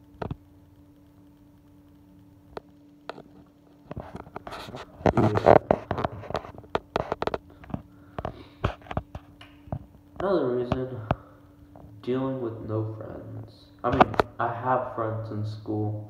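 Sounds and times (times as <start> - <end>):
steady low hum: 0.0 - 16.0
rustling and scraping: 3.1 - 12.0.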